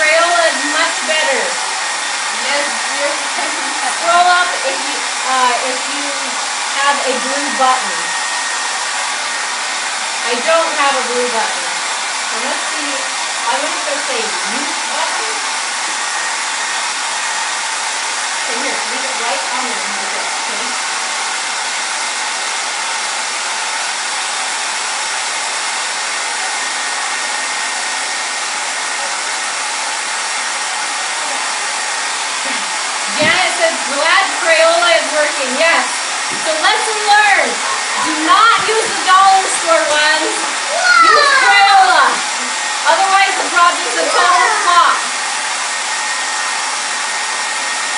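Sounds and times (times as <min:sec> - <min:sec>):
hair dryer running: 0:00.0 - 0:47.9.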